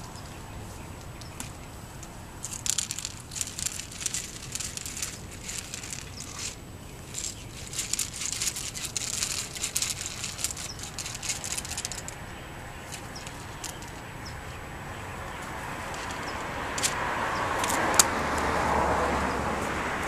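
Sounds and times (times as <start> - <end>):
rustling: 0.0 - 17.0
vehicle approaching: 0.0 - 20.0.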